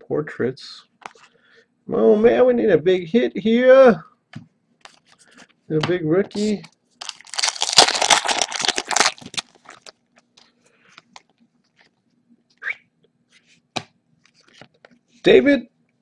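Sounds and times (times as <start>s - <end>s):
wrapper tearing and crinkling: 7.0s - 10.0s.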